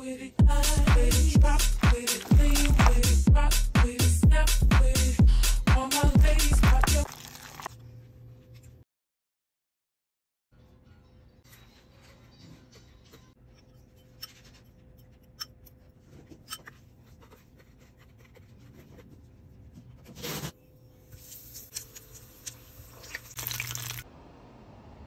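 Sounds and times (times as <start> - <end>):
hands rolling ball in breadcrumbs: 1.6 - 3.2
oil sizzling and crackling: 21.2 - 24.1.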